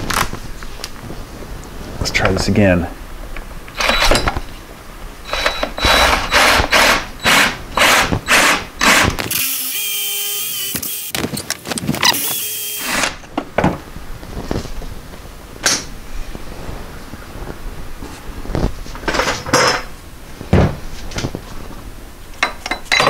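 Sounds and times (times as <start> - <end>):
power drill whining: 3.8 - 4.4, 5.2 - 11.2, 12.0 - 13.2.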